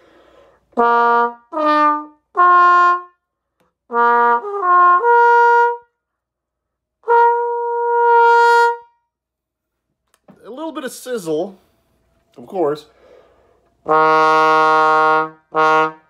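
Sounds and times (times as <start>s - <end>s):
muted bass trombone: 0.8s - 3.1s, 3.9s - 5.8s, 7.0s - 8.8s, 13.8s - 16.0s.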